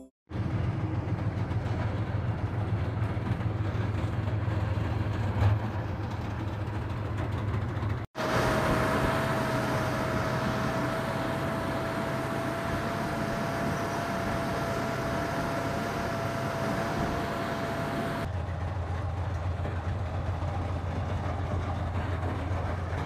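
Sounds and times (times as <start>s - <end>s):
tracked vehicle engine rumble: 0.3s - 23.0s
steady high whine: 8.2s - 18.3s.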